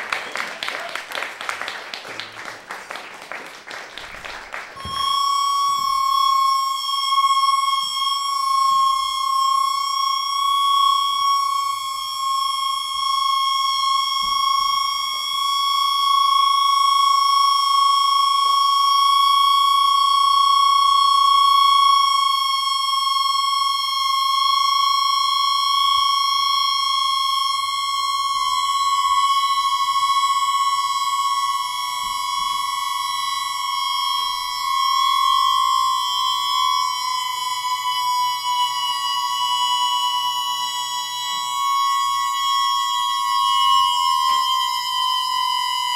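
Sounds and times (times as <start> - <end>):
high electronic tone: 4.8 - 45.9.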